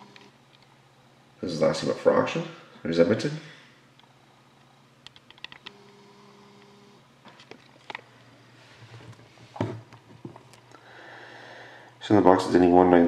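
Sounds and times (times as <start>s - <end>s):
steady hum: 0.0s - 13.0s
keyboard and mouse clicks: 5.1s - 5.8s.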